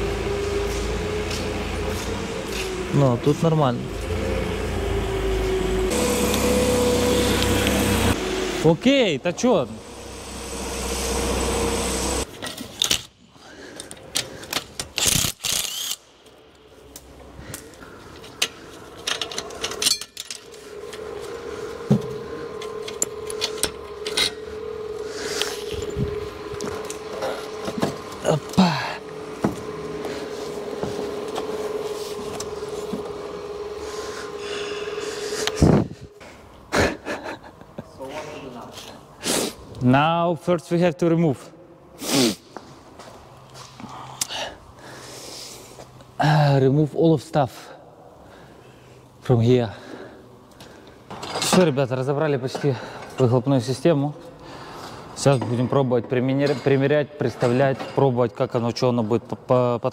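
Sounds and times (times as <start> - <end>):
forklift engine running: 0.0 - 12.3, 20.4 - 36.2
steady hum: 0.0 - 13.7, 15.6 - 39.8.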